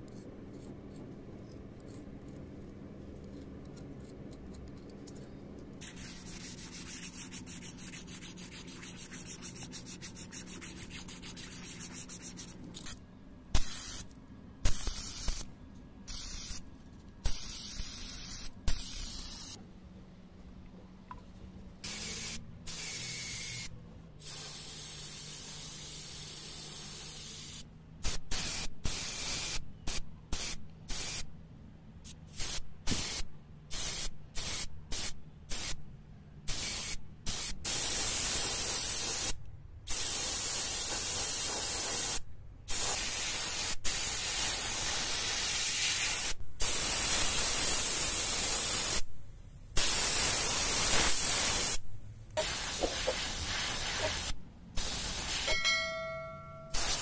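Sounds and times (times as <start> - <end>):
airbrush hissing: 5.8 - 13.0, 13.6 - 15.5, 16.1 - 16.6, 17.2 - 19.6, 21.8 - 31.2, 49.8 - 51.8, 52.4 - 55.6, 56.7 - 57.0.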